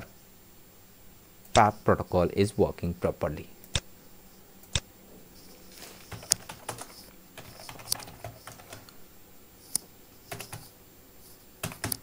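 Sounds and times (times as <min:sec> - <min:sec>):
keyboard typing: 0:06.0 - 0:08.9, 0:10.3 - 0:10.7, 0:11.6 - 0:12.0.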